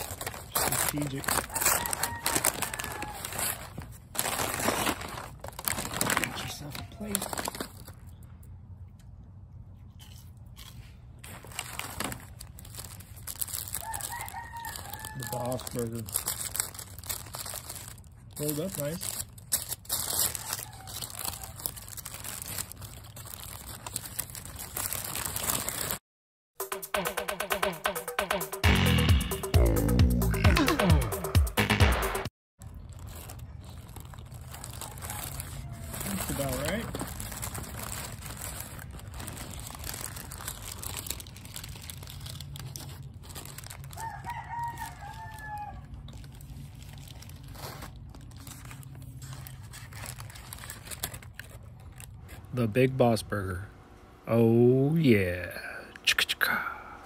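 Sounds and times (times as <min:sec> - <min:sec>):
paper wrapper crinkling: 0:00.0 - 0:08.6, 0:10.0 - 0:26.0, 0:32.6 - 0:52.5
rooster crowing: 0:01.4 - 0:03.8, 0:13.7 - 0:15.7, 0:20.2 - 0:21.8, 0:34.4 - 0:36.4, 0:43.8 - 0:46.1.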